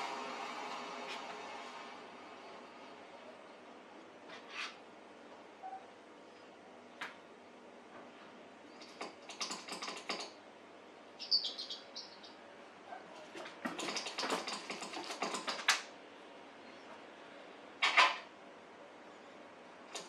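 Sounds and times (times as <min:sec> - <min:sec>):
high chirps: 0:11.2 - 0:12.4.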